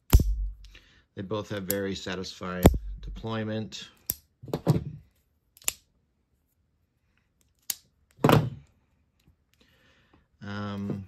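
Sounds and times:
folding knife clicks and snaps: 4.0 - 4.3, 5.6 - 5.9, 7.6 - 7.9.

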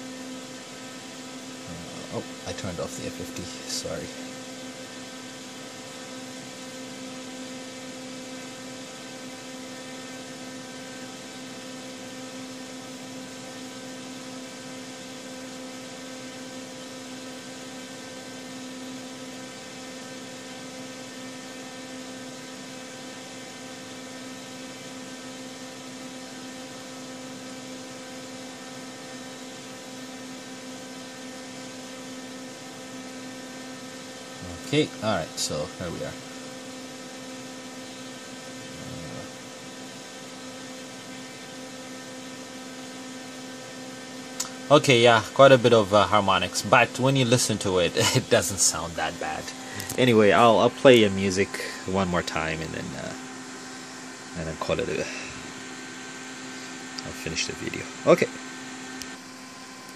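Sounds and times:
steady electrical hum: 0.0 - 59.9.

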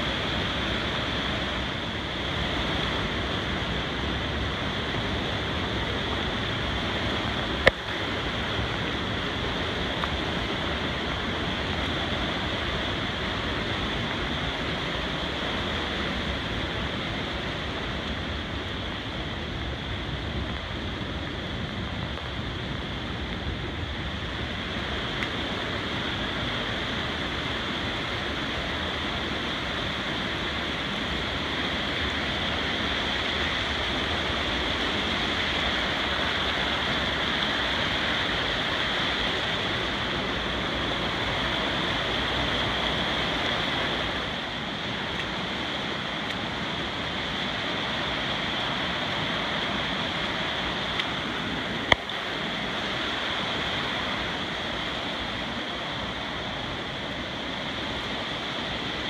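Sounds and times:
creek rushing over rocks: 0.0 - 59.0.

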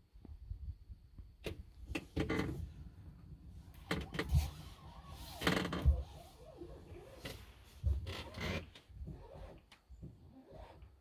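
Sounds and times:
knocks and rubbing: 5.3 - 9.4.

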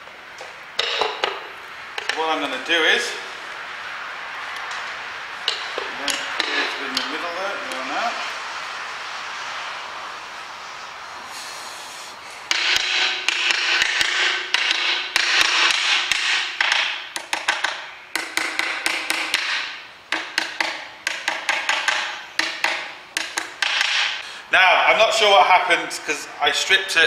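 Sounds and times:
hammer tapping on metal: 5.5 - 7.1, 12.5 - 24.0.

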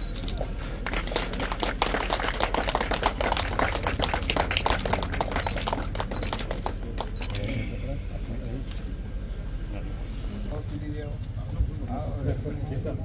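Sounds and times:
people clapping: 0.0 - 7.7.

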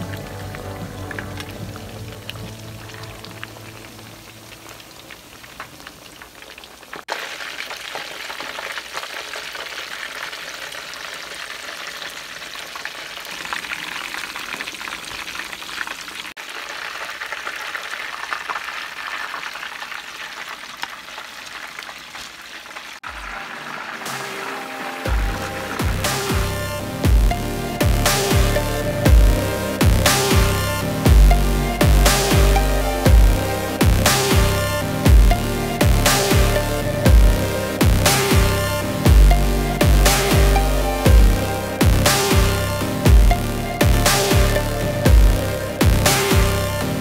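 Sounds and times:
meat sizzling in hot oil: 1.0 - 27.5.

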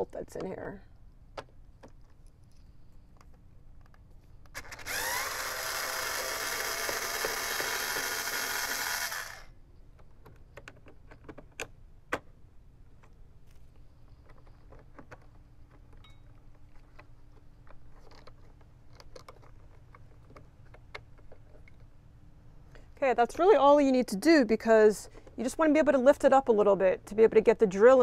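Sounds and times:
electric screwdriver motor whine: 4.6 - 9.5.

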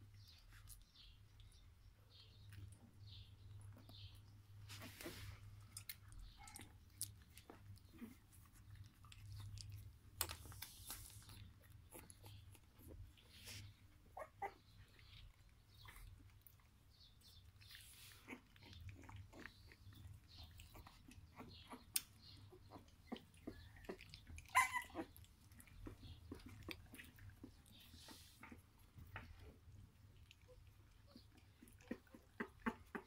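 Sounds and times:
puppies squeaking and grunting: 0.1 - 33.0
soft clicks and rustles: 2.4 - 14.0.

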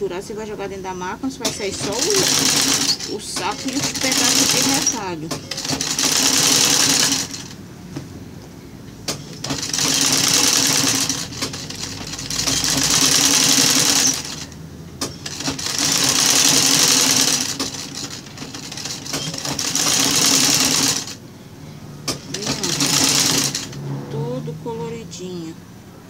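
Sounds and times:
sewing machine stitching: 1.5 - 7.6, 9.1 - 21.2, 22.1 - 23.8.

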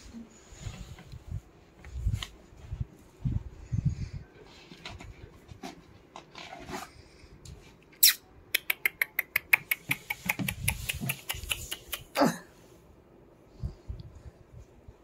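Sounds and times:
dog claws clicking on tiles: 8.6 - 12.1.

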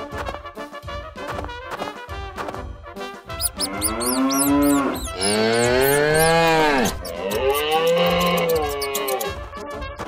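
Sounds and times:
quick high chirps: 3.3 - 9.4
cow mooing: 3.5 - 9.3.

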